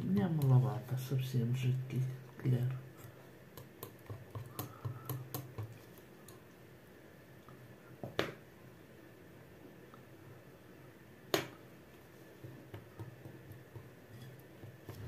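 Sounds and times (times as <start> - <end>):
utensil clicking against bowl: 3.6 - 6.4.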